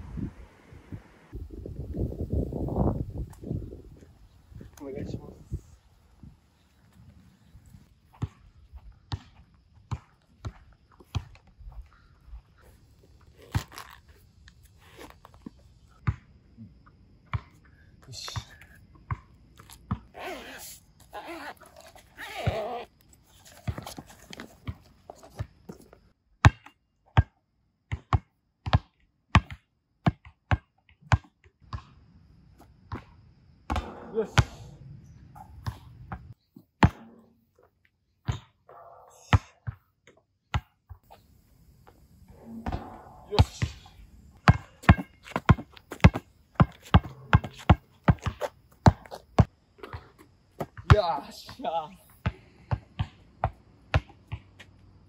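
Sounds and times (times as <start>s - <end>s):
basketball bouncing: 33.7s - 34.6s, 36.8s - 37.3s, 42.4s - 50.0s, 52.2s - 54.6s.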